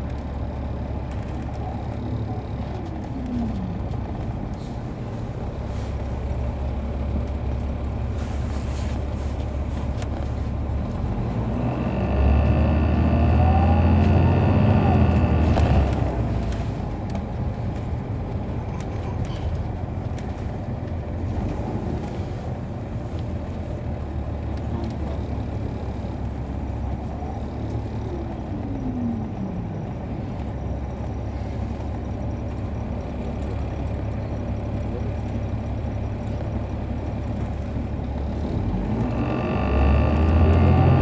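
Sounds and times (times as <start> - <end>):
bus diesel engine rumble: 0.0 - 41.0
falling whine: 11.1 - 16.3, 38.4 - 41.0.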